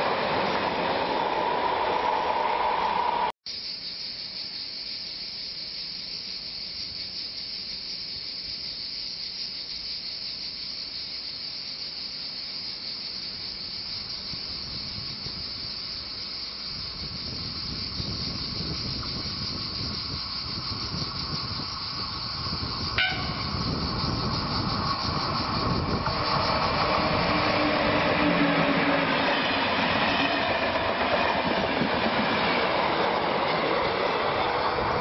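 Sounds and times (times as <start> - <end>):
train rumbling: 0.0 - 3.3, 13.8 - 35.0
cicadas shrilling: 0.0 - 35.0.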